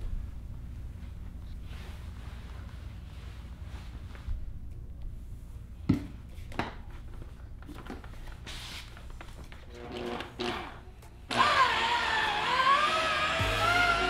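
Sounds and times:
electric polisher running: 11.3s - 14.0s
background music wavering melody: 12.5s - 14.0s.

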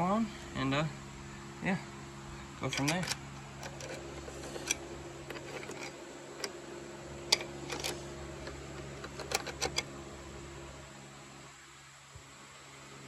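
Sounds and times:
steady low hum: 0.0s - 13.0s
light metal clicks and taps: 2.7s - 6.6s.

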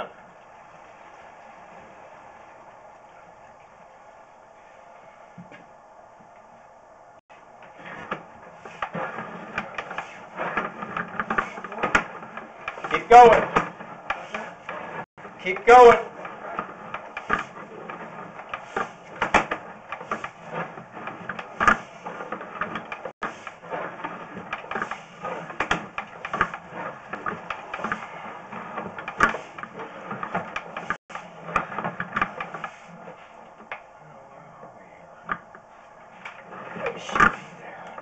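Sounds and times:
cable clicking and rattling in pipe: 7.5s - 33.9s.

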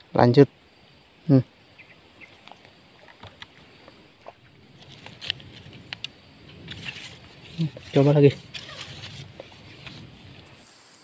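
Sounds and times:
insects chirring: 0.0s - 11.0s
handling clicks and rustles: 2.4s - 10.6s.

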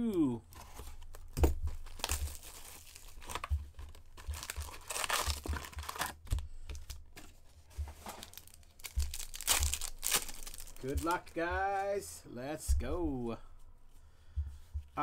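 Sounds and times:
cardboard tearing and crinkling: 0.6s - 6.9s, 7.9s - 11.3s.

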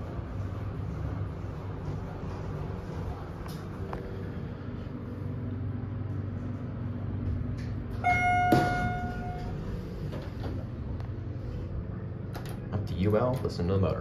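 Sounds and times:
elevator motor hum: 0.0s - 14.0s
elevator chime: 7.9s - 10.1s.

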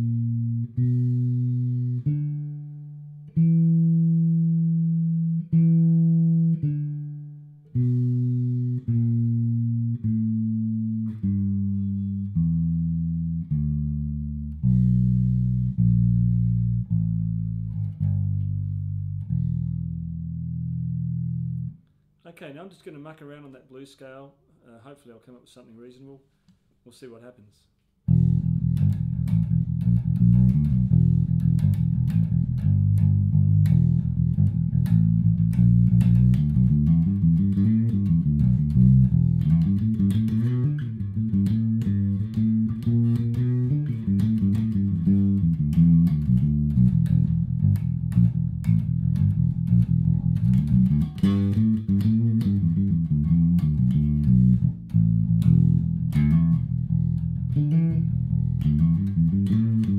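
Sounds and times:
electric bass guitar improvising: 0.0s - 21.8s, 28.0s - 59.9s.

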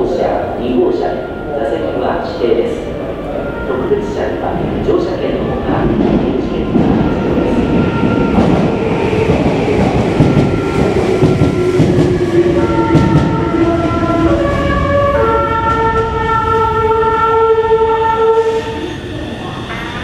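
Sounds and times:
electric train rumbling: 0.0s - 20.0s
musical train horn: 11.3s - 18.9s.

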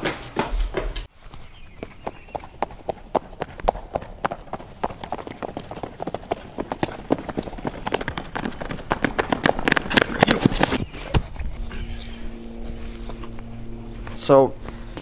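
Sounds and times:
running footsteps: 0.0s - 11.6s.

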